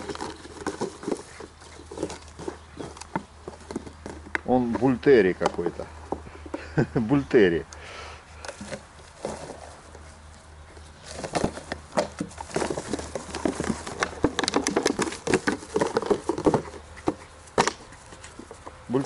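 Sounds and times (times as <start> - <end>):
puppy tugging toy clicks and rustles: 0.0 - 4.7, 10.7 - 19.0.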